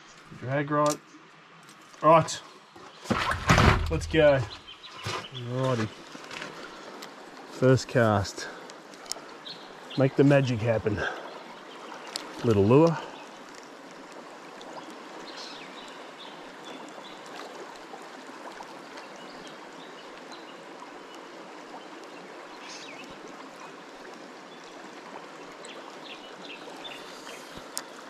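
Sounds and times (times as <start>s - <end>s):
river running over rocks: 5.6s - 28.0s.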